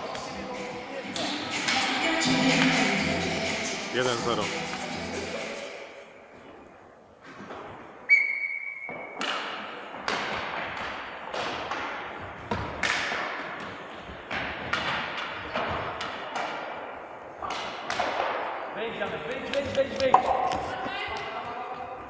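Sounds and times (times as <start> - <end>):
hockey sticks striking ball: 8.8 - 21.9.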